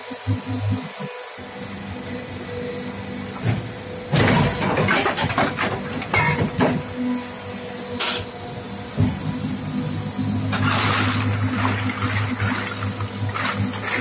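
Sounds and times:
moulding machine humming and whining: 0:00.0 - 0:14.0
machine hissing: 0:05.8 - 0:14.0.

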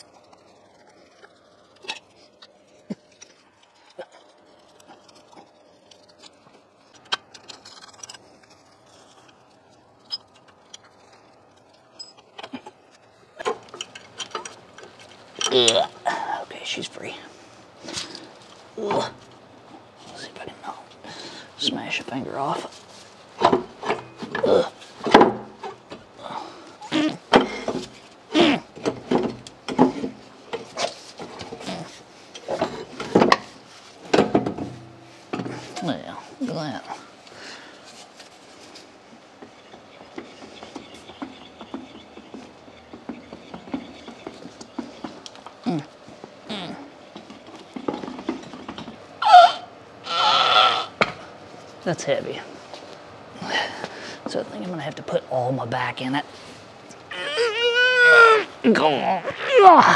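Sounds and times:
heavy motor clunking against metal: 0:32.4 - 0:35.6.

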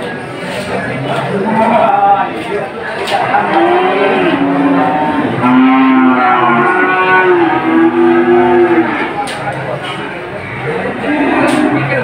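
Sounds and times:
cattle mooing: 0:03.2 - 0:09.2, 0:10.4 - 0:12.0.

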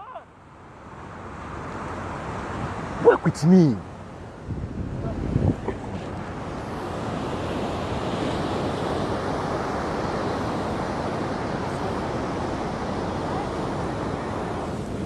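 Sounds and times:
sea surf: 0:00.0 - 0:15.0
wind on microphone: 0:04.3 - 0:15.0.

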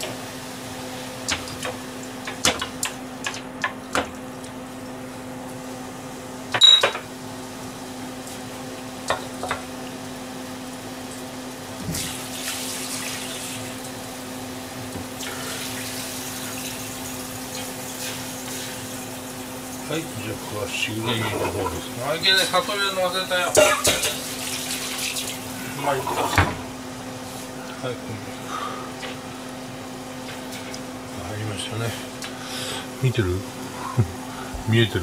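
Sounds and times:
tap water running into sink: 0:11.8 - 0:14.0, 0:14.9 - 0:22.6, 0:23.5 - 0:26.6
metal bowl clanging: 0:23.6 - 0:24.2.

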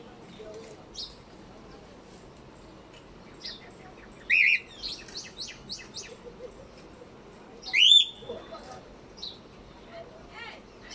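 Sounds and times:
cockatiels chirping: 0:04.2 - 0:06.1.

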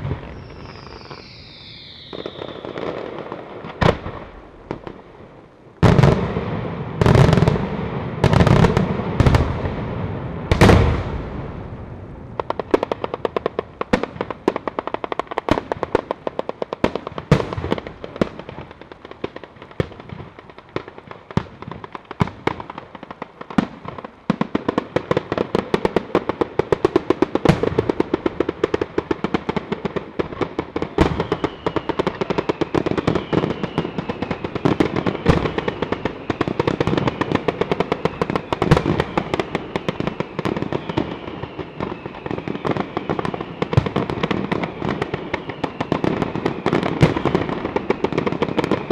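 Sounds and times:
firecrackers crackling rapidly: 0:00.0 - 0:05.1, 0:05.8 - 0:48.9
faint high whistling tone: 0:00.2 - 0:02.8, 0:31.2 - 0:36.6, 0:37.9 - 0:43.8, 0:44.6 - 0:46.8
heavy firecracker bangs: 0:05.8 - 0:18.7.

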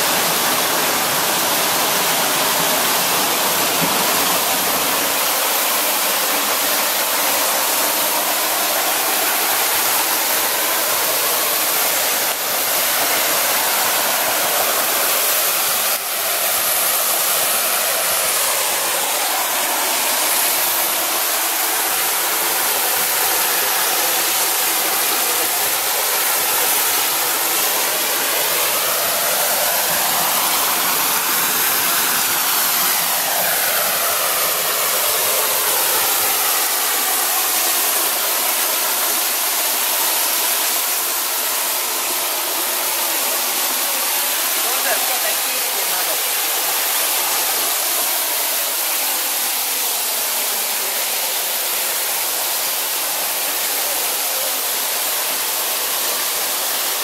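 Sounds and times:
waterfall splashing into pool: 0:00.0 - 0:57.0.

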